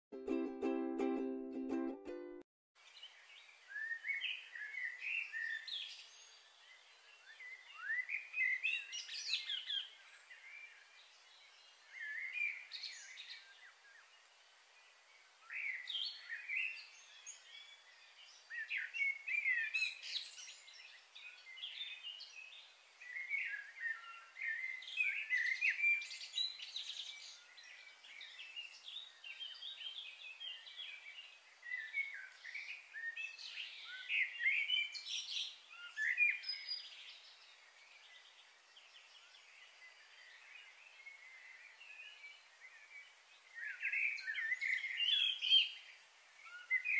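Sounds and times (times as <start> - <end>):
small birds chirping: 2.8 - 46.9.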